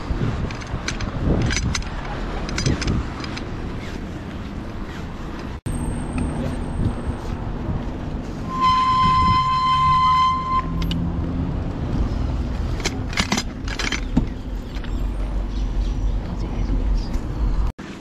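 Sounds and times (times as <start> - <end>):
moving bicycle rumble: 0.0 - 18.0
horn tone: 8.4 - 10.9.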